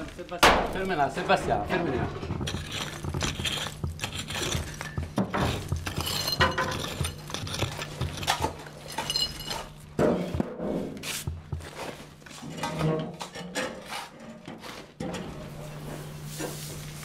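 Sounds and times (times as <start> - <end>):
rubble and ceramic pieces clinking: 2.3 - 9.9.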